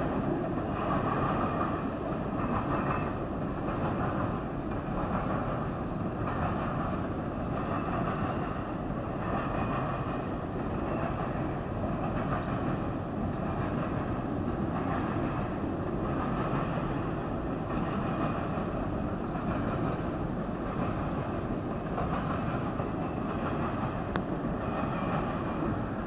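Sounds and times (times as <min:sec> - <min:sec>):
freight train wheels rumbling: 0:00.0 - 0:26.0.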